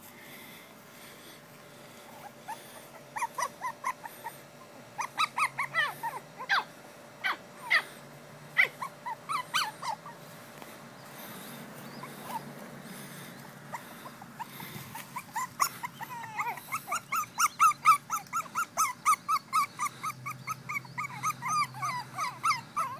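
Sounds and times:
puppies whining: 0:01.9 - 0:22.9.

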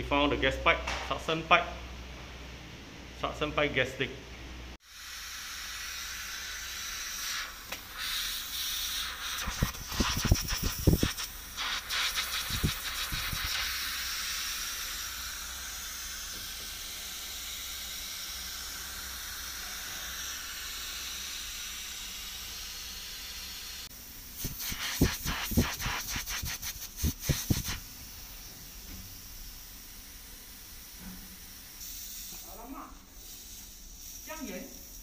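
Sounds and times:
gas hissing from pipe leak: 0:04.8 - 0:35.0
hands rustling pipe insulation: 0:24.4 - 0:27.8.

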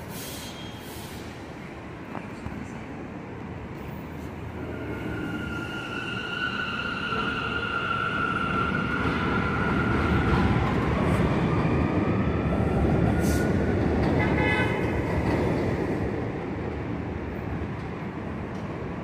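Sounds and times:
subway train rumble: 0:00.0 - 0:19.0.

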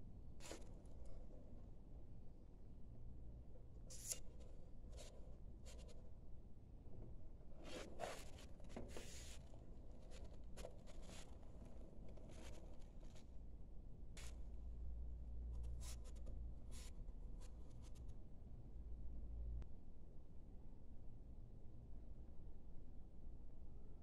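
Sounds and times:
faint low hum: 0:00.0 - 0:24.0
hands rubbing a box: 0:07.6 - 0:13.3.

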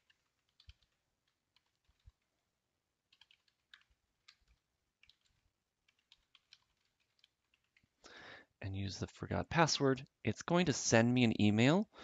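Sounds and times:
keyboard typing: 0:00.0 - 0:08.0.

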